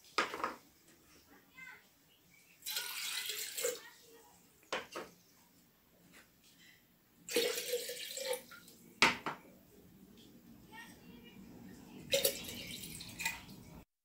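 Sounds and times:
water pouring into jug: 0:02.6 - 0:03.8, 0:07.3 - 0:08.8, 0:12.1 - 0:13.8.

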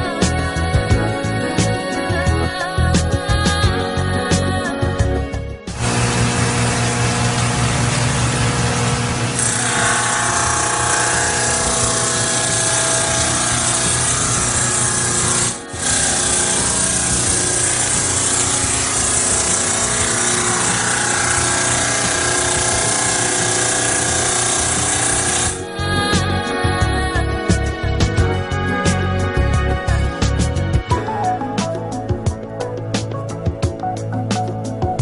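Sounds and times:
saw blade grinding stone: 0:07.7 - 0:25.6.

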